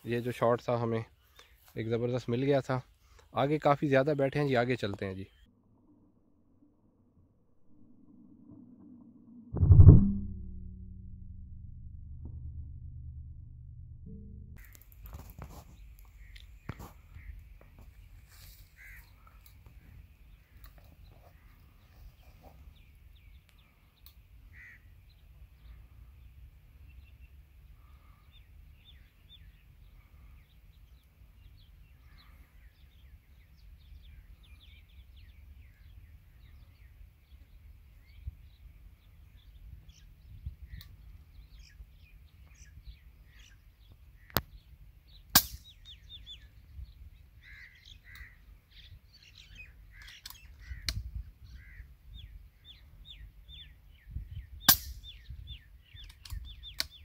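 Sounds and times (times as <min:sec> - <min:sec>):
small birds chirping: 0:00.0 - 0:05.5, 0:14.6 - 0:57.0
wind rumble on microphone: 0:09.4 - 0:15.8, 0:38.0 - 0:41.6, 0:50.6 - 0:56.7.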